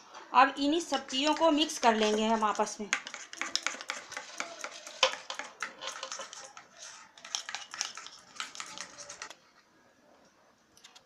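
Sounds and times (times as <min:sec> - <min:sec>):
spoon scraping against bowl: 0:00.9 - 0:09.4.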